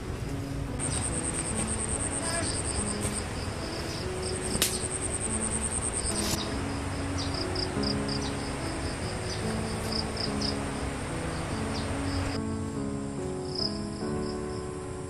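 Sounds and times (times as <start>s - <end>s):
insect slow repeated chirp: 0.7s - 15.0s
insect high fast trill: 0.8s - 12.4s
sharp click: 4.5s - 4.9s.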